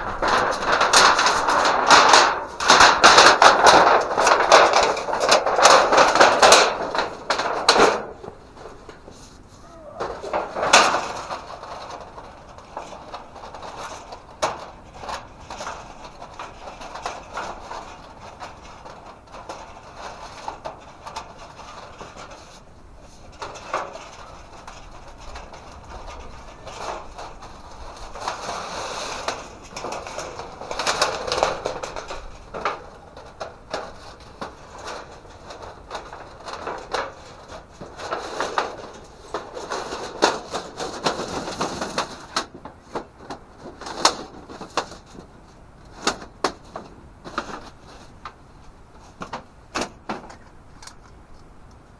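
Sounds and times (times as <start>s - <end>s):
sheet metal clack: 0.0s - 9.0s
sheet metal scraping: 0.0s - 45.3s.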